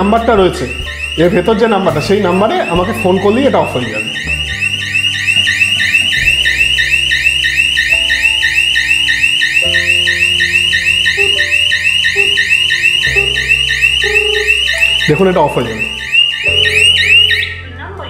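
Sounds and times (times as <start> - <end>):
security alarm siren warbling: 0.0 - 17.7.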